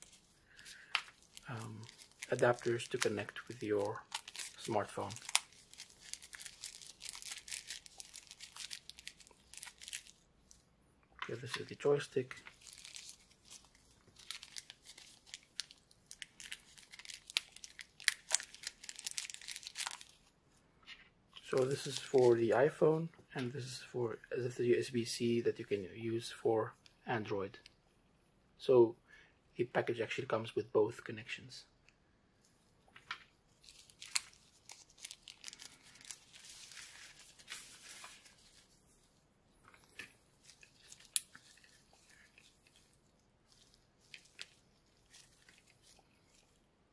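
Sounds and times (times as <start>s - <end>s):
packaging crinkling and rustling: 0.0s - 10.6s, 11.3s - 20.3s, 21.4s - 22.7s, 33.0s - 46.6s.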